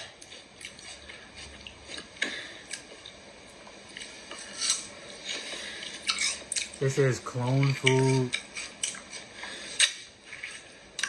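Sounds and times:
clicks and clinks of eating: 3.9 - 6.8.

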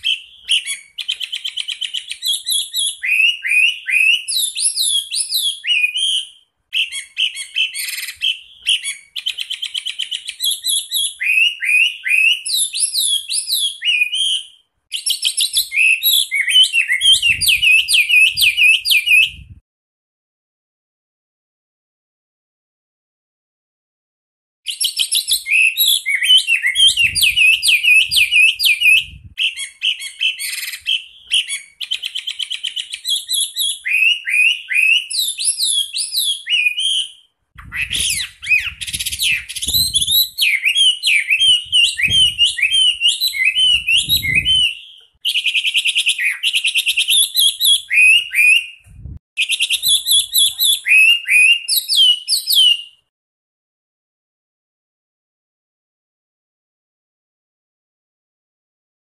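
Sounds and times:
bird singing trills: 24.7 - 48.7.

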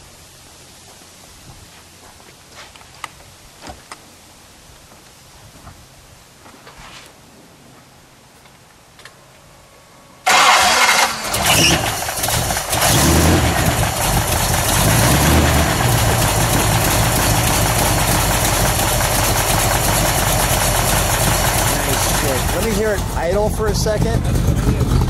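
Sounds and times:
car engine starting and idling: 10.2 - 25.0.

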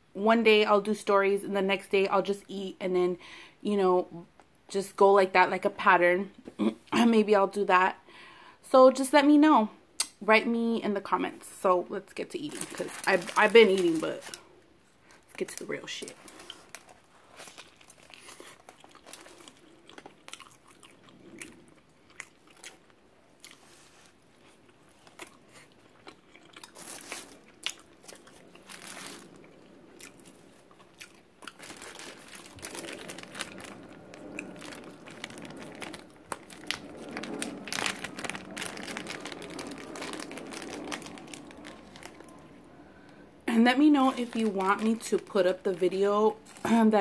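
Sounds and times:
plastic bag rustling: 12.1 - 20.1, 26.7 - 47.0
paper and foil wrapper crinkling: 12.2 - 14.4, 15.0 - 20.2, 26.6 - 47.0
chewing with wet mouth clicks: 18.4 - 23.6, 24.6 - 28.6.

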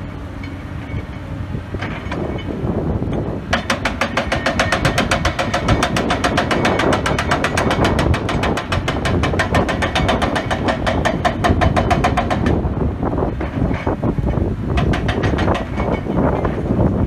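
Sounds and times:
diesel engine running: 0.0 - 17.0
hydraulic breaker hammering rock: 3.5 - 12.7, 13.3 - 16.8.

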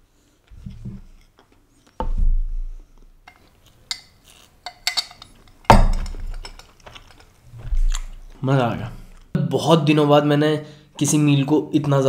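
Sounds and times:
light tableware clinks: 3.3 - 7.3
glass knocked down on table: 5.7 - 6.4.

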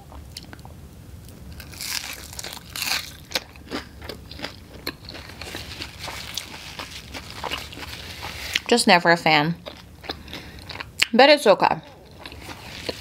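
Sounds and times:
crunching of crisp food: 1.4 - 8.8, 9.5 - 11.1, 11.8 - 13.0
chewing crunches: 1.6 - 8.7, 9.5 - 11.2, 11.8 - 13.0.

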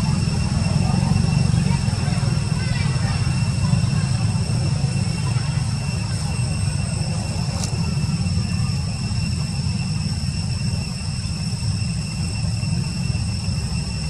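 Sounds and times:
high-pitched whine: 0.0 - 14.0.

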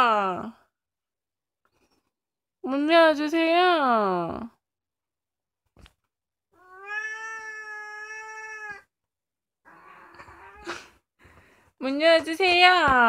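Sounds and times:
cat meowing: 6.6 - 8.9.

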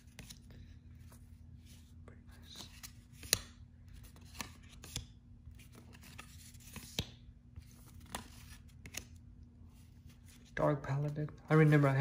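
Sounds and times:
cards snapping down: 2.6 - 5.2, 7.9 - 9.2.

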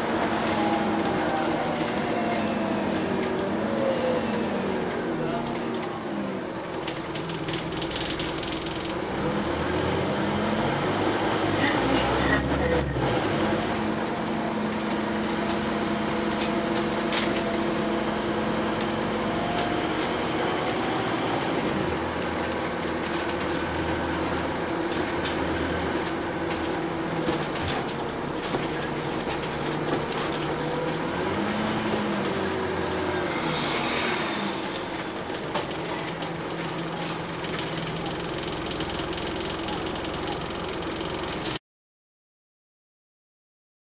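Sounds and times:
bus diesel engine drone: 0.0 - 41.6
rattles and clicks of bus body: 4.3 - 9.2, 13.2 - 33.0, 34.6 - 41.6.

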